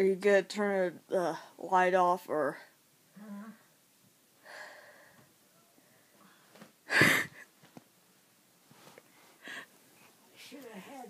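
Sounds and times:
breathy sigh: 4.4s - 5.3s
loud breath: 4.4s - 5.3s.

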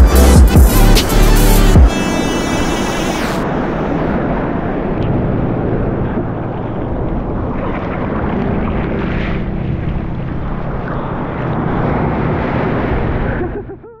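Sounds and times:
wind buffeting microphone: 2.7s - 13.7s.

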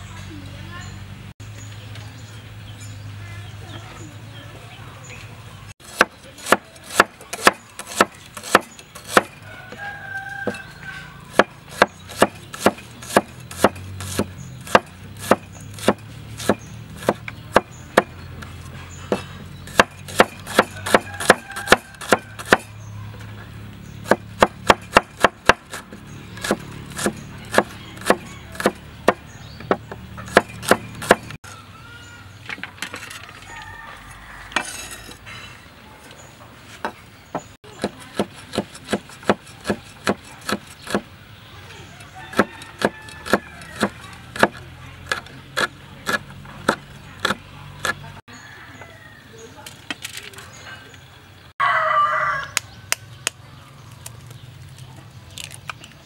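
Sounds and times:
cleaver chopping on wooden board: 5.8s - 9.4s, 11.3s - 18.2s, 19.1s - 22.8s, 24.0s - 31.4s, 36.8s - 41.1s, 42.3s - 48.0s.

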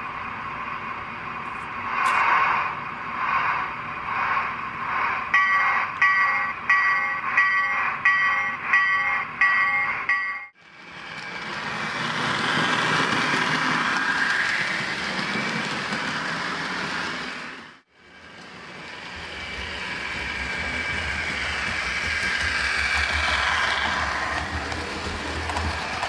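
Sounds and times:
model train wheels and motors whirring: 10.6s - 26.0s
low hum: 18.1s - 26.0s.

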